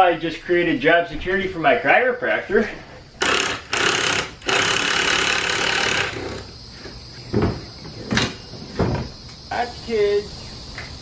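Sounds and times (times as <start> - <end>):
thump: 7.3 - 9.2.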